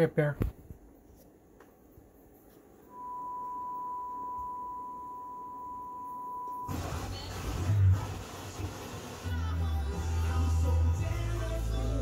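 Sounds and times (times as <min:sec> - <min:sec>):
sine test tone: 0:02.9 - 0:06.8.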